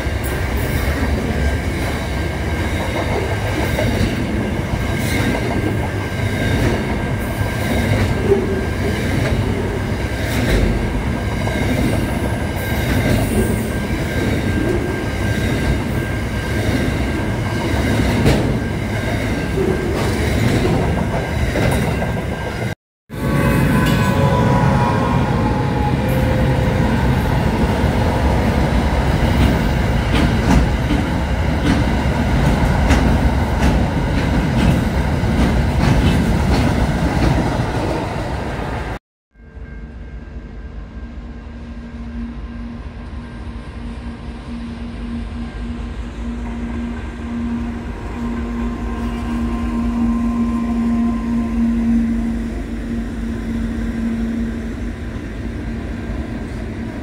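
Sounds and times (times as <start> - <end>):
diesel train low hum: 0.0 - 57.0
train wheels clicking over rail joints: 29.1 - 37.5.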